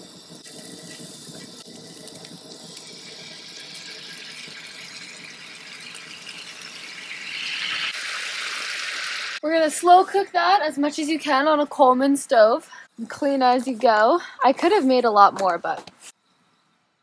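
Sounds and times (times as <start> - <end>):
food sizzling in a skillet: 0.0 - 10.0.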